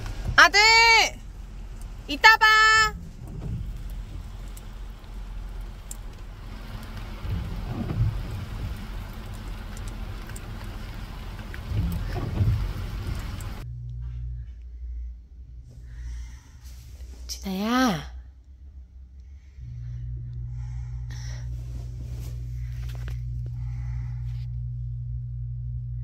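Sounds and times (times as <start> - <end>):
rain falling on a car: 0.0 - 13.6
car engine idling hum: 0.0 - 26.0.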